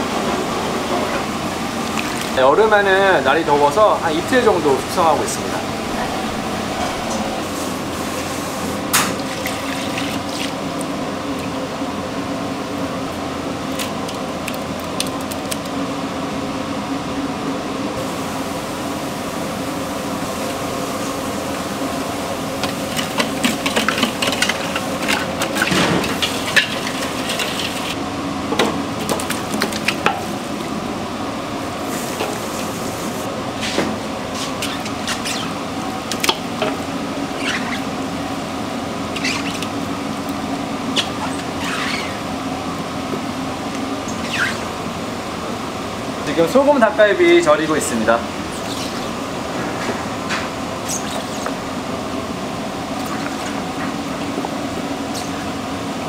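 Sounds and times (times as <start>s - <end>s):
steady machine hum: 0.0s - 56.0s
kitchen handling clicks and clatter: 22.9s - 27.9s.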